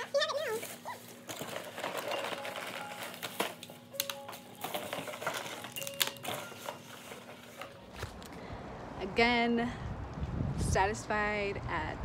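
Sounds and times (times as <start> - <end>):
small hard objects clinking: 1.2 - 7.8.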